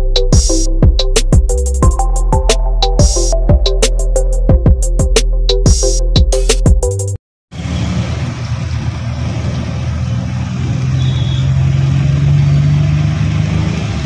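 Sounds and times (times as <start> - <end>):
road noise: 7.5 - 14.0
vehicle motor humming: 7.6 - 14.0.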